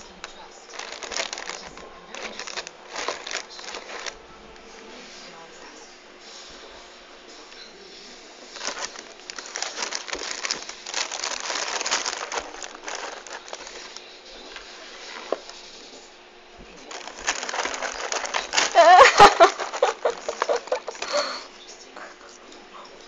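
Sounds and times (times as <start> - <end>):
cat scratching cereal box: 0.0 - 4.2, 8.5 - 15.8, 16.8 - 21.2.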